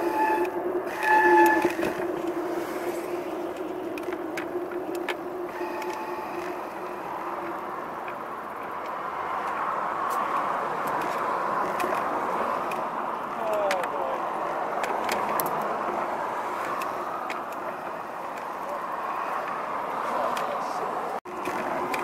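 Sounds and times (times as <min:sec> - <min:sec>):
short loud tone: 0:00.0 - 0:02.1, 0:05.5 - 0:07.1
rushing wind noise: 0:00.0 - 0:13.4
bicycle road hum: 0:00.0 - 0:22.0.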